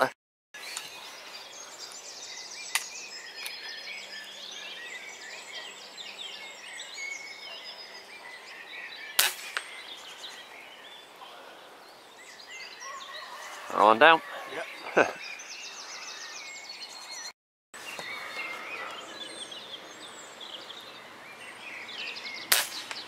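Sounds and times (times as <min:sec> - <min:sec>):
small birds chirping: 0:00.6 - 0:23.0
air rifle shot: 0:09.2 - 0:09.7, 0:22.5 - 0:23.0.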